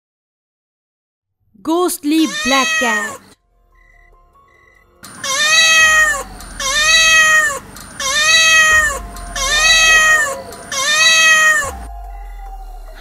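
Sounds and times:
cat meowing: 2.2s - 3.4s, 5.1s - 11.9s.

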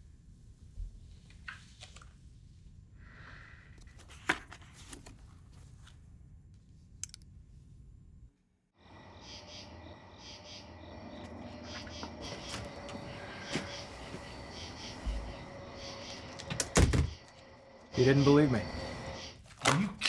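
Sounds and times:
paper folder rustling: 3.9s - 6.0s
insects chirping: 8.8s - 19.4s.

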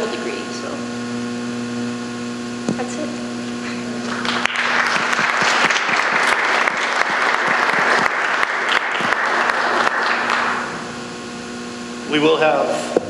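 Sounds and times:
crowd applauding: 4.0s - 10.9s.

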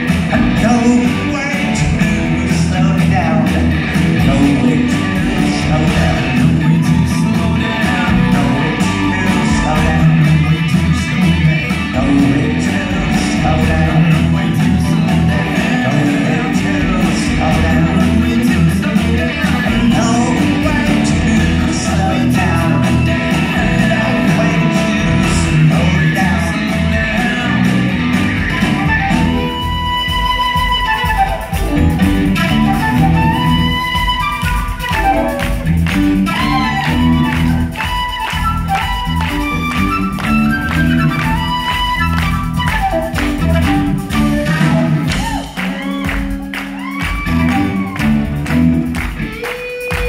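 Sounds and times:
live rock band playing: 0.0s - 50.0s
flute playing held notes: 28.4s - 48.4s.

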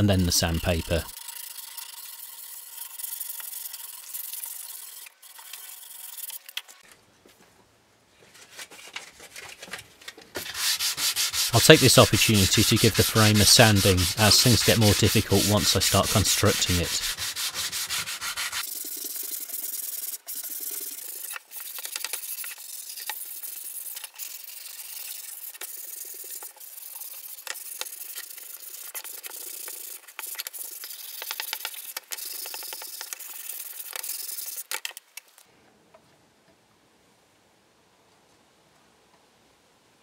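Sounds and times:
sandpaper rubbing on wood: 0.0s - 6.2s, 10.4s - 18.7s, 19.5s - 34.6s.

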